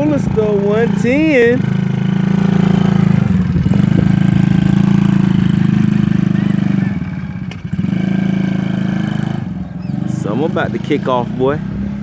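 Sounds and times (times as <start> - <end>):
small quad bike engine running: 0.0 - 12.0.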